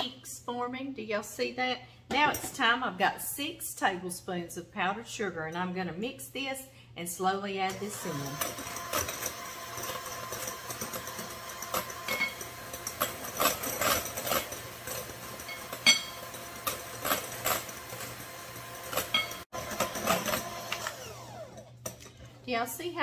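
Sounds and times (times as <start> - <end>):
electric hand mixer running: 7.7 - 21.7.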